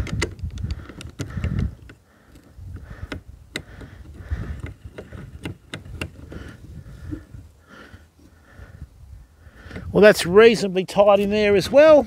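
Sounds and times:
metallic clicks of nuts tightened: 0.0s - 7.2s.

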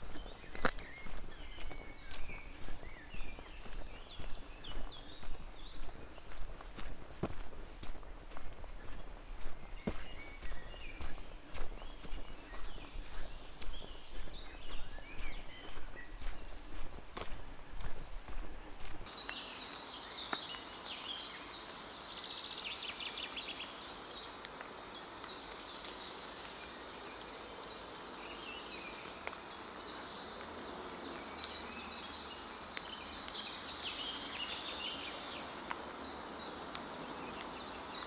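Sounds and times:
songbirds chirping: 0.0s - 38.0s
outdoor background hiss: 16.5s - 38.0s.

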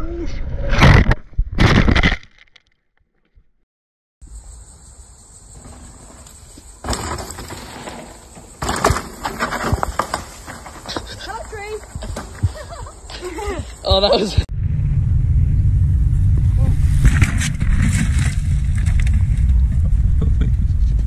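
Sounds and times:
trail noise: 4.3s - 21.0s
bike crashing to the ground: 5.6s - 11.2s, 16.9s - 19.8s
bike landing on rocks: 5.6s - 12.7s.

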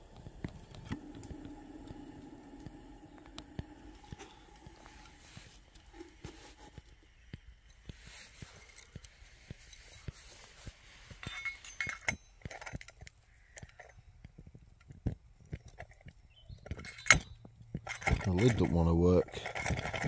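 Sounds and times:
small sharp ticks: 12.5s - 17.0s.

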